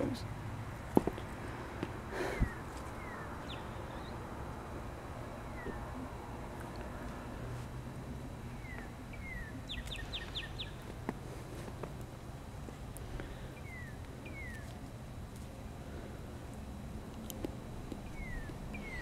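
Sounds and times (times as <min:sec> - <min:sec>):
low steady rumble: 0:00.0 - 0:19.0
songbird singing: 0:00.0 - 0:19.0.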